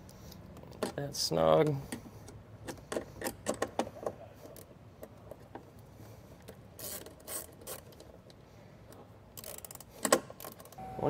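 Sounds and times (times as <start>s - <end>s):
socket ratchet clicking: 9.4s - 10.8s.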